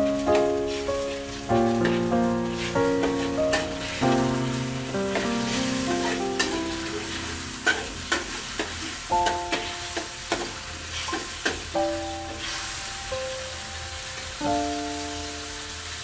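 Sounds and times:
sauce sizzling: 0.0 - 16.0
soft piano background music: 0.0 - 16.0
metal spatula scraping wok: 0.6 - 11.7.

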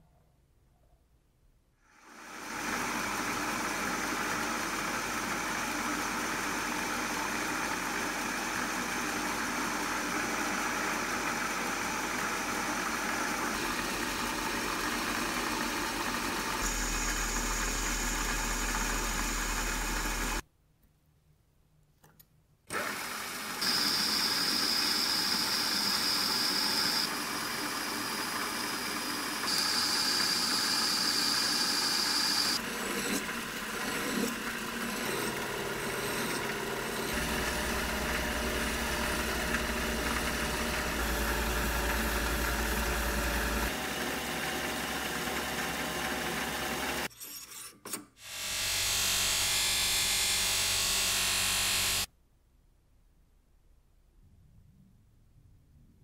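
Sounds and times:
metal lathe running: 12.4 - 20.4, 22.7 - 47.1
buffing wheel spinning: 23.6 - 43.8.

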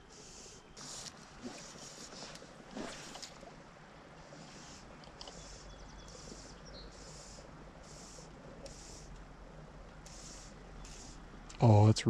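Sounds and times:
steady low hiss: 0.0 - 12.0.

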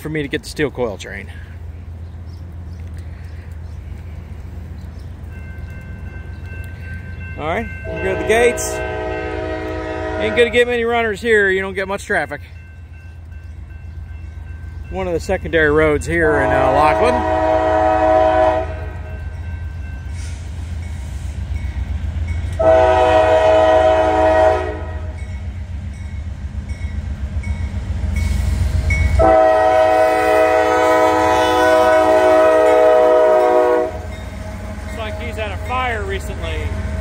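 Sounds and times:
train low rumble: 0.0 - 37.0
locomotive air horn blasts: 7.8 - 10.7, 16.4 - 19.1, 22.6 - 25.2, 28.4 - 36.1.

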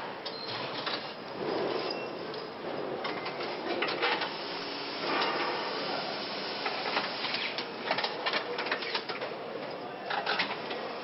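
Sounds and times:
factory machinery hiss: 4.0 - 7.6
tools and parts clattering: 10.1 - 10.7.

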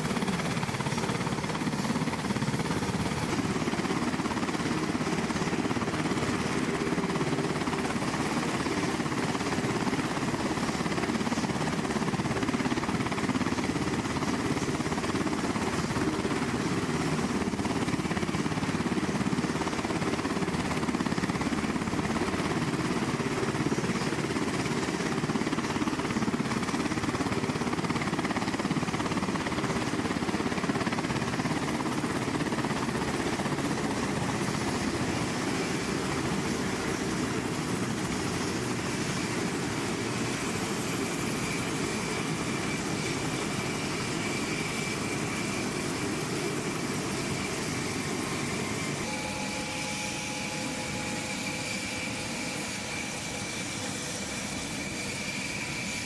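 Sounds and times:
helicopter rotor and engines rumbling: 0.0 - 56.0
high whine: 48.6 - 56.0.

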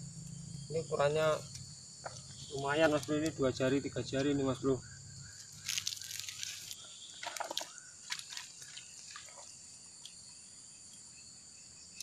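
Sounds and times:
crickets chirping: 0.0 - 12.0
fish handling rustles and clicks: 5.5 - 8.8.

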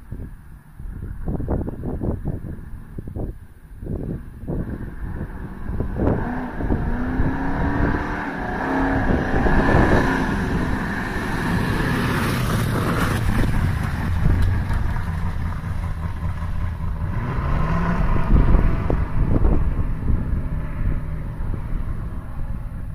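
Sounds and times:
hot rod engine revving past: 5.0 - 22.4.

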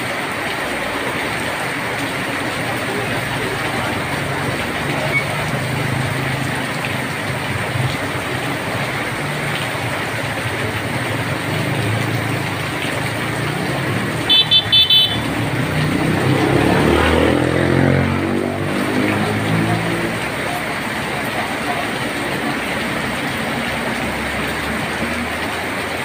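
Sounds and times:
heavy rain on wet road: 0.0 - 26.0
passing engine: 1.9 - 25.8
vehicle horn toots: 14.3 - 15.3.

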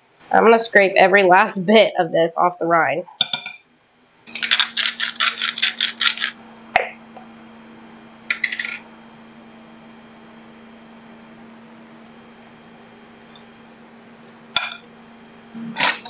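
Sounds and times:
spice grinder clicking: 4.3 - 6.3.

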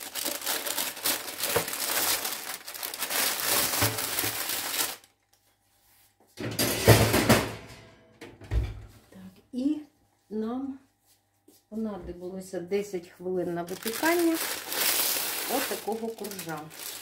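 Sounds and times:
baking parchment crinkling: 0.0 - 5.2, 13.5 - 17.0.

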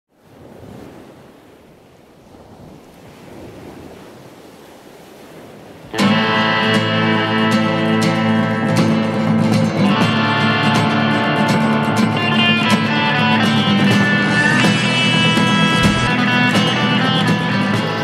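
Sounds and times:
loud guitar music: 5.9 - 18.0
soft rushing noise: 14.1 - 16.4.

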